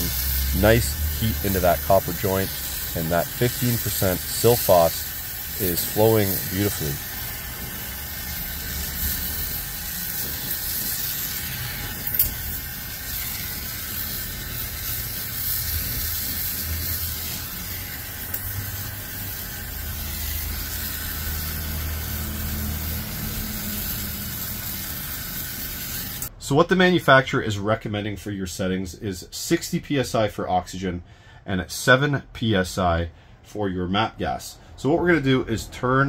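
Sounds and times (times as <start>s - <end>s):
gas torch hissing: 0.0s - 26.3s.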